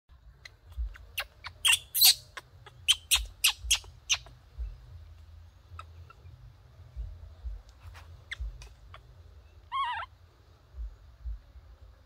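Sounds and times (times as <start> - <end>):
baby monkey squeaking: 0.3 - 4.8, 5.7 - 6.4, 7.9 - 10.2.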